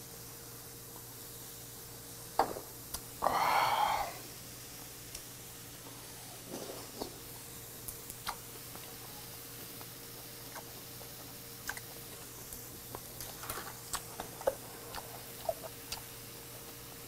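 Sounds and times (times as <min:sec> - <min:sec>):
person chewing with wet clicks: 0:07.8 - 0:16.9.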